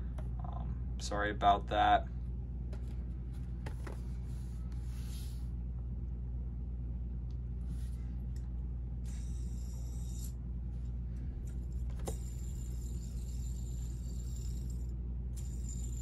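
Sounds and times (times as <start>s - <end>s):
low room noise hum: 0.0s - 16.0s.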